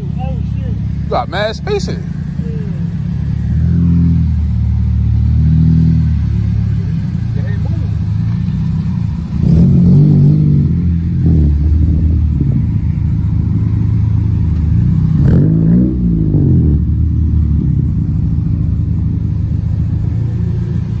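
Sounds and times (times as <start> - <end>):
car engine idling and revving: 0.0 - 21.0.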